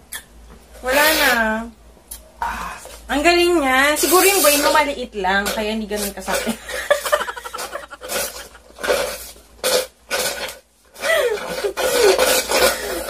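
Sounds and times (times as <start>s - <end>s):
slurping through a straw: 6.3s - 13.0s.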